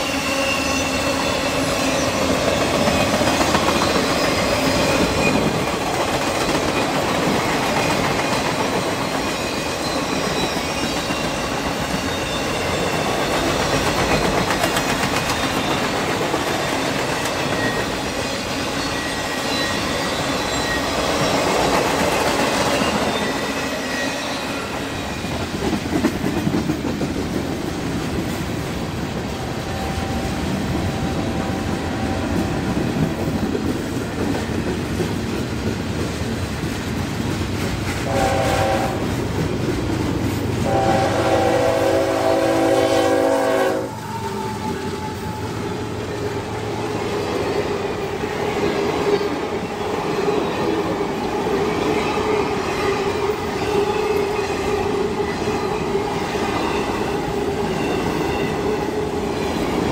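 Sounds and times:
train cars clacking over rails: 0:00.0 - 0:42.5
locomotive horn blasts: 0:38.0 - 0:39.1, 0:40.6 - 0:45.6.

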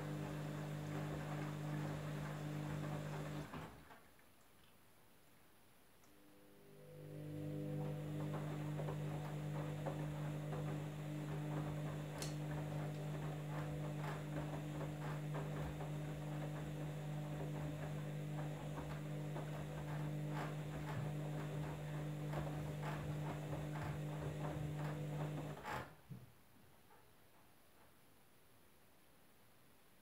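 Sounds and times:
washing machine motor hum: 0:00.0 - 0:03.9, 0:06.2 - 0:26.0.

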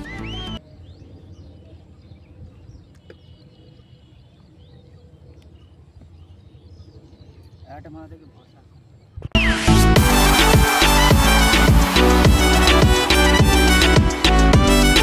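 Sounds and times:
background music: 0:00.0 - 0:00.6, 0:09.4 - 0:15.0
faint bird chirps: 0:00.0 - 0:09.3.

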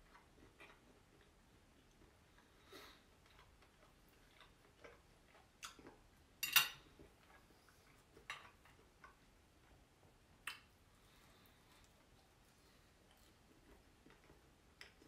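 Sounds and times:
cutlery clinking on a plate: 0:06.4 - 0:06.9.

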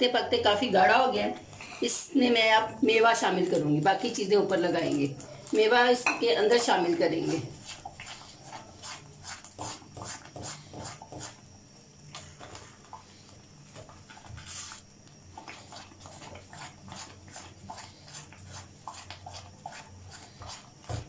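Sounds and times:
faint steady hum: 0:00.0 - 0:21.0
spatula scraping a pan: 0:06.5 - 0:11.4, 0:15.4 - 0:21.0.

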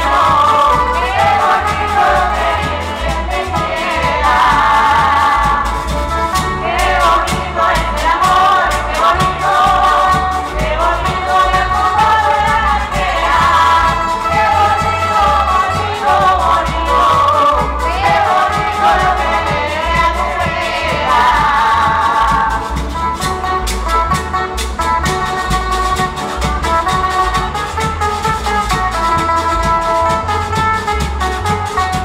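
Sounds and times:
voices singing together: 0:00.0 - 0:23.7
drum beat: 0:00.0 - 0:32.0
strummed guitars: 0:00.0 - 0:32.0.

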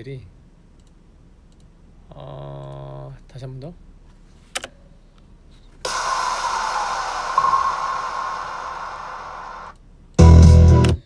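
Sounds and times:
click: 0:00.8 - 0:01.7
hissy music playback: 0:05.9 - 0:11.0.

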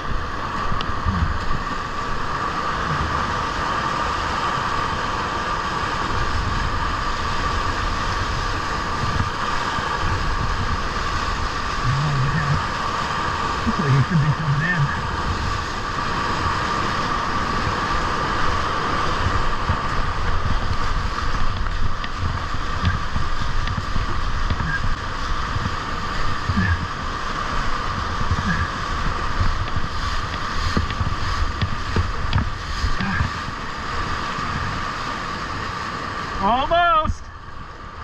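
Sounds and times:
wind buffeting microphone: 0:00.0 - 0:36.4
water splashing against hull: 0:00.0 - 0:38.0
whitewater rushing: 0:00.0 - 0:38.0.

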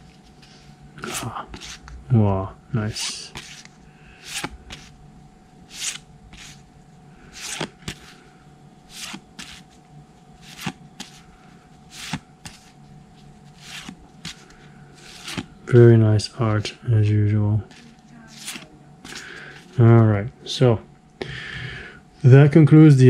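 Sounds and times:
cards flipped with a snap: 0:12.0 - 0:12.6.

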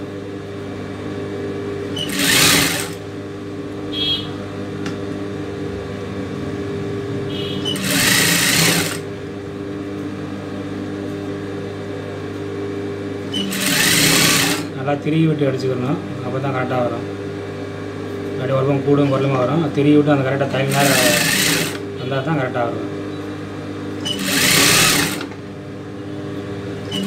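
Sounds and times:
steady hum: 0:00.0 - 0:27.0
sewing machine stitching: 0:02.0 - 0:03.0, 0:07.6 - 0:09.0, 0:13.3 - 0:14.7, 0:20.7 - 0:21.8, 0:24.0 - 0:25.3.

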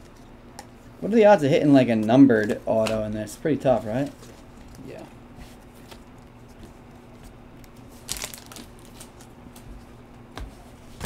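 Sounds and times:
cards and wrappers rustling: 0:07.6 - 0:09.3.

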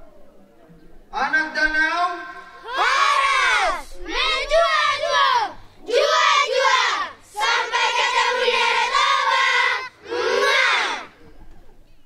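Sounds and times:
children shouting in a cheer: 0:02.6 - 0:11.1.

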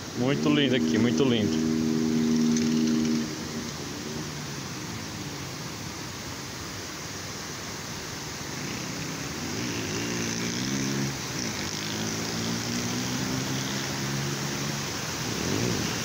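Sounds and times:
pitched drone: 0:00.0 - 0:06.5
water rushing over rock: 0:00.0 - 0:16.0.

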